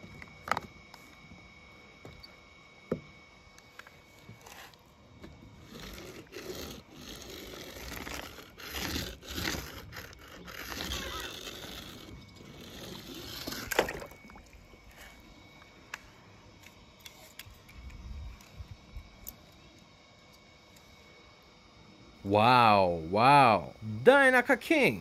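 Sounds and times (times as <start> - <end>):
toy wheels scraping through paint: 5.5 - 14.2.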